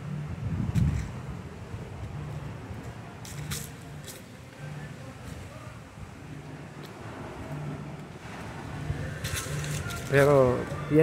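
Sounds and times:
wind rumbling on microphone: 0.0s - 3.4s.

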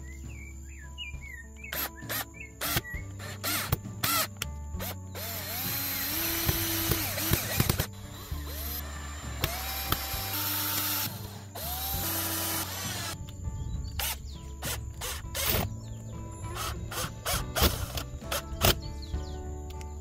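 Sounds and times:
cordless drill driving screws: 1.8s - 13.2s, 14.0s - 15.7s, 16.5s - 18.8s.

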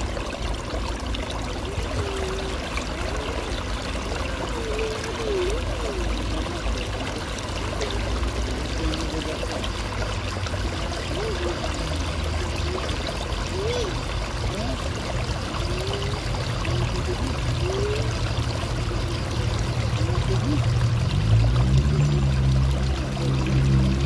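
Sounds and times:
water splashing into fountain pool: 0.0s - 24.0s.

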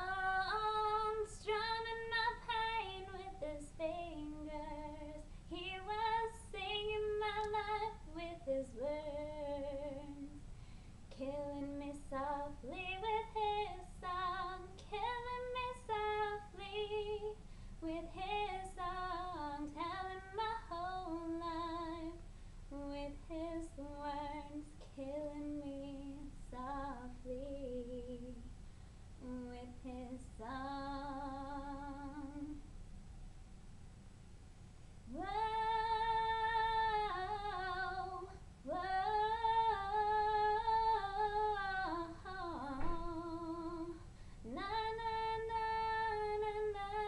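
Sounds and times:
woman singing a cappella: 0.0s - 28.6s, 29.2s - 32.7s, 35.0s - 47.0s.

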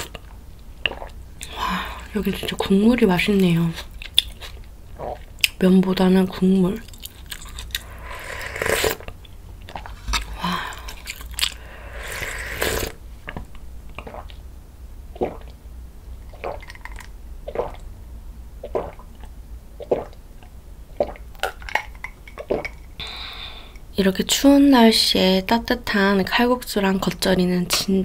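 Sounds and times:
swallowing: 0.0s - 2.5s, 4.3s - 5.5s, 6.8s - 14.4s, 15.1s - 15.6s, 16.2s - 17.8s, 18.6s - 22.9s
gulping water: 0.0s - 14.4s, 15.1s - 15.6s, 16.2s - 17.9s, 18.6s - 23.0s
slurping hot broth: 7.3s - 9.1s, 9.7s - 13.0s, 15.2s - 15.6s, 16.3s - 17.8s, 19.8s - 20.2s.

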